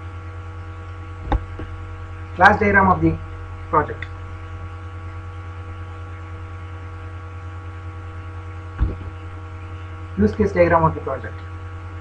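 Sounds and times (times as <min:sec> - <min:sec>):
electrical mains hum: 0:00.0 - 0:12.0
short low thump: 0:08.8 - 0:09.2.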